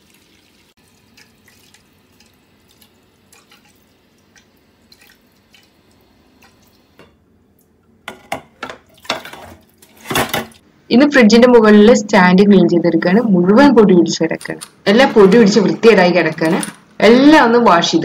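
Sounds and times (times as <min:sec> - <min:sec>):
tap water running into pan: 0:00.0 - 0:07.1
cookware clattering: 0:08.0 - 0:10.6.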